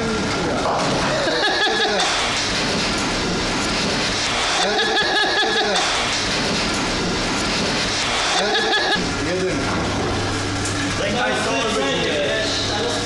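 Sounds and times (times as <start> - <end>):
bowling alley machinery noise: 0.0 - 13.0.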